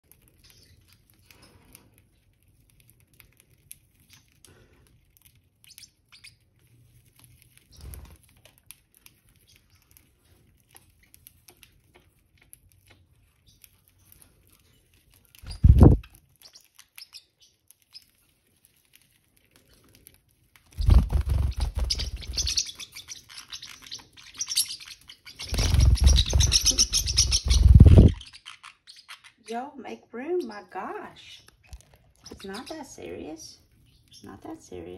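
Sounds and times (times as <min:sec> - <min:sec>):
faint bird chirps: 0:00.4 - 0:01.8, 0:05.6 - 0:06.5, 0:15.4 - 0:18.2, 0:20.8 - 0:29.6
wing flapping and scuffling: 0:06.9 - 0:12.0, 0:14.4 - 0:16.2, 0:18.4 - 0:22.8, 0:25.2 - 0:28.2.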